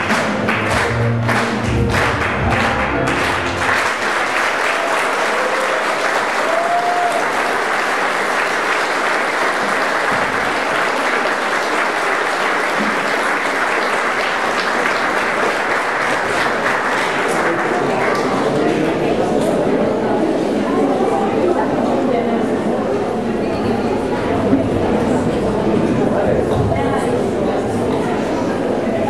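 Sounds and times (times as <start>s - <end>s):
dance music: 0.0s - 4.1s
audience applauding: 0.0s - 19.8s.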